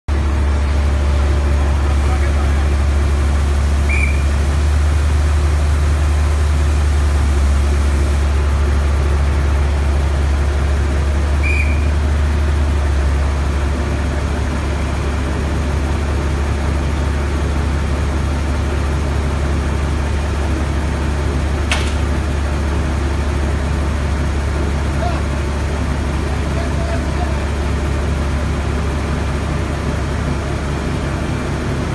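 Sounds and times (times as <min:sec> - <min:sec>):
large engine droning: 0:00.1 - 0:31.9
short high chirps: 0:03.9 - 0:04.4, 0:11.4 - 0:12.0
sharp click: 0:21.7 - 0:22.0.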